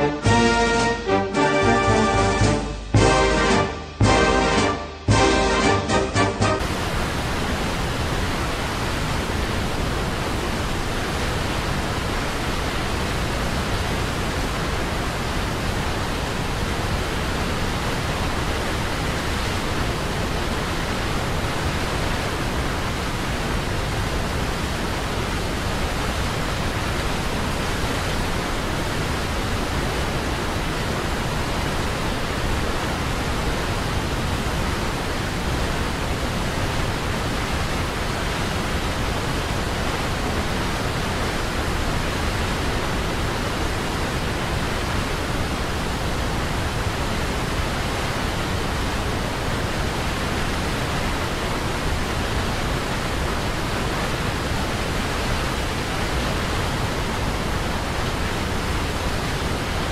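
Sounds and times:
waterfall splashing over rocks: 6.6s - 59.9s.

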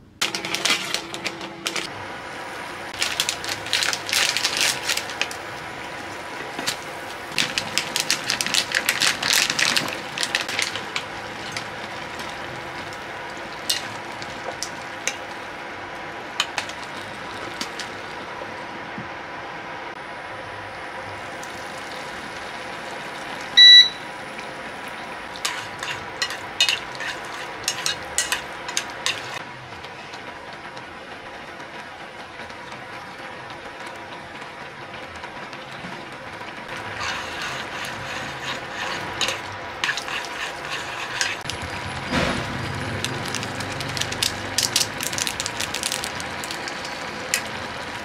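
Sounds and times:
cooktop beep: 23.5s - 24.2s.

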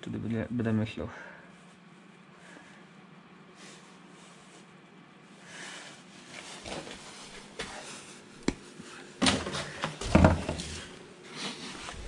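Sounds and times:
electrical wires rustling: 6.0s - 12.0s.

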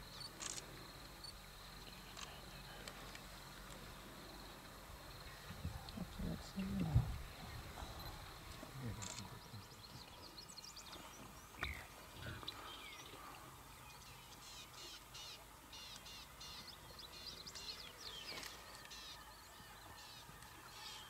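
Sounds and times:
birds chirping: 0.0s - 21.0s.

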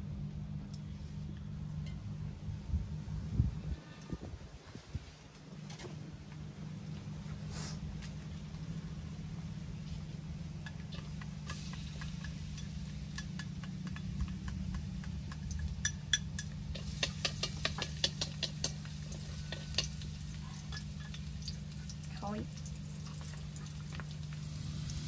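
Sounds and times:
hot oil crackling and popping: 9.4s - 25.0s
oil sizzling in a wok: 10.6s - 25.0s.

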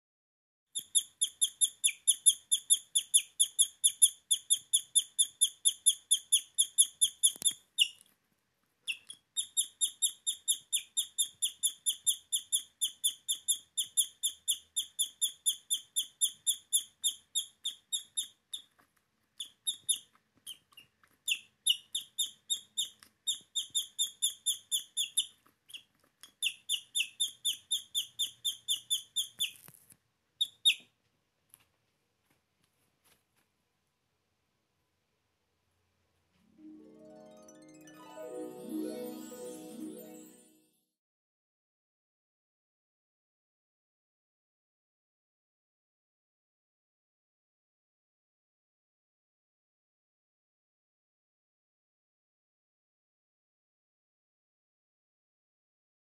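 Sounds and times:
guinea pig squeaking: 0.7s - 8.0s, 8.9s - 29.8s, 30.4s - 31.0s.

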